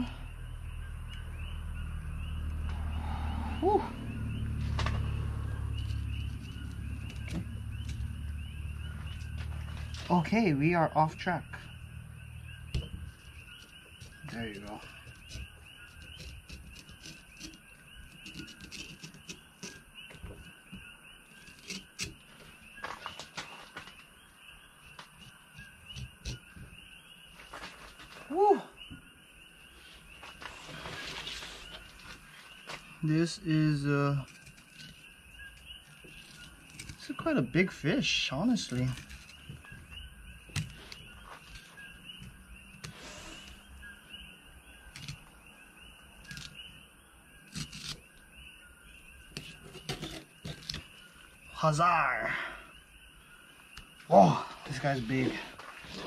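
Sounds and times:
night animals chirping: 0.0s - 56.0s.

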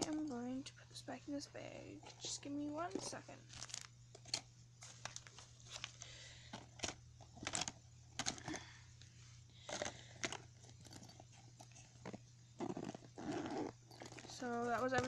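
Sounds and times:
plastic packaging rustling: 2.1s - 8.7s.

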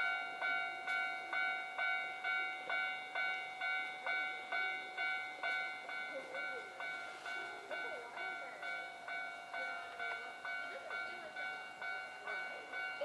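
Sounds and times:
level-crossing warning bell ringing: 0.0s - 13.0s.

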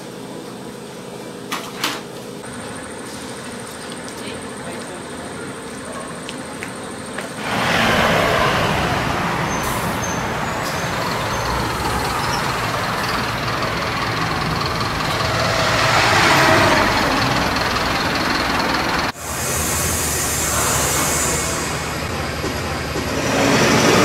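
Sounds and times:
bus engine rumbling: 2.4s - 24.0s
street traffic: 2.4s - 24.0s.

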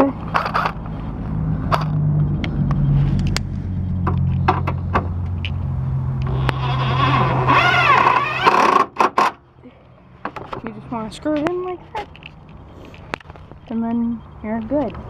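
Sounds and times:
low hum: 0.0s - 8.8s.

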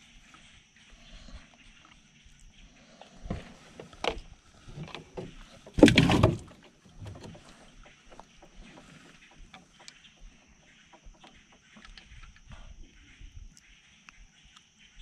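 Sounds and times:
knocks of handling in boat: 3.2s - 10.1s.

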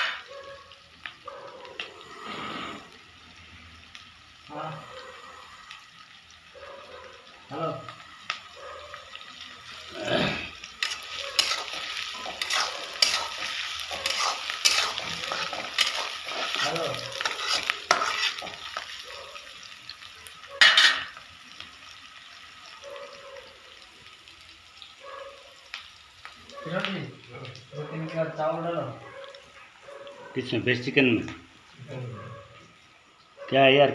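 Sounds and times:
metal clatter on a pan: 0.0s - 0.3s, 10.8s - 18.9s, 20.6s - 21.2s
onions sizzling in oil: 0.0s - 33.9s
spatula scraping a pan: 10.7s - 19.0s.

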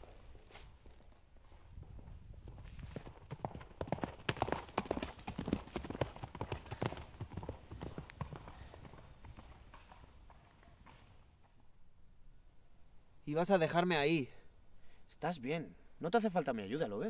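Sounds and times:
rapid footfalls passing by: 1.8s - 11.6s.

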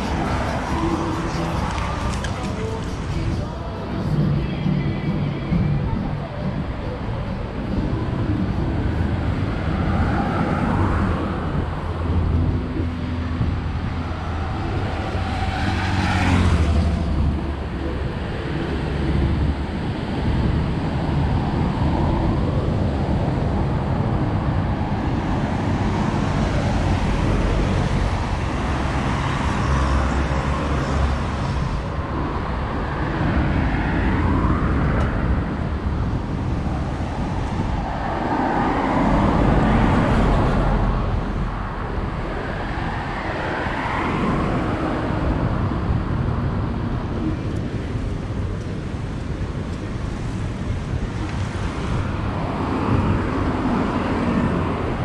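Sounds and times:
cars and vans passing: 0.0s - 55.0s
low traffic rumble: 0.0s - 55.0s.

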